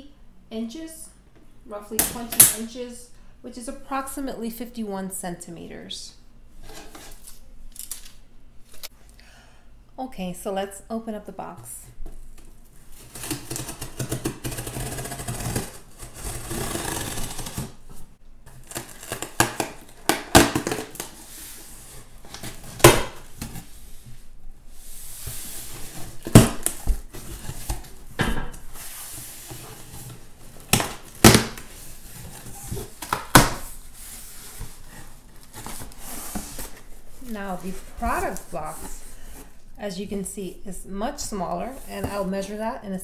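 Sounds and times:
cardboard flaps rustling and scraping: 13.0 - 39.6
cardboard knocks and snaps: 18.7 - 21.1, 22.8 - 23.5, 30.7 - 31.6.

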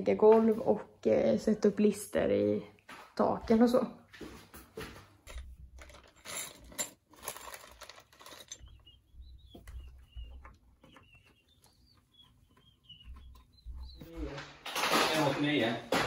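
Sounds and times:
thin high chirping: 8.3 - 14.2.

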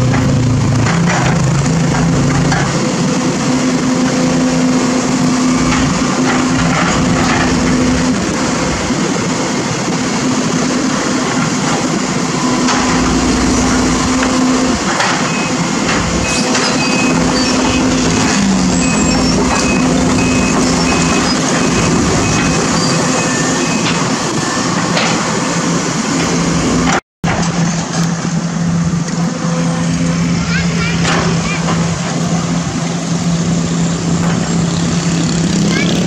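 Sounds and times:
excavator diesel engine running: 0.0 - 36.0
low hum: 12.2 - 24.5.

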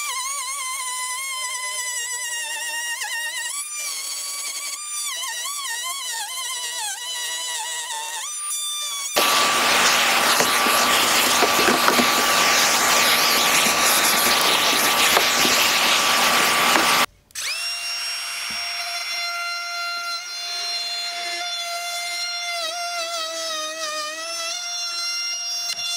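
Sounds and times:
power tool running: 9.2 - 17.6.

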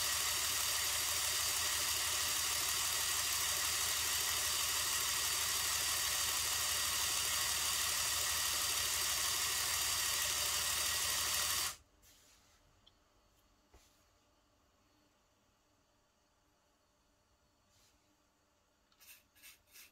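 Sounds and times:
air compressor humming and hissing: 0.0 - 11.8.

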